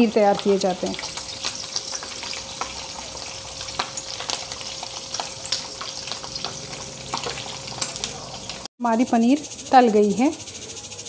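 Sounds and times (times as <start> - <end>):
cheese sizzling and popping in oil: 0.0 - 8.7.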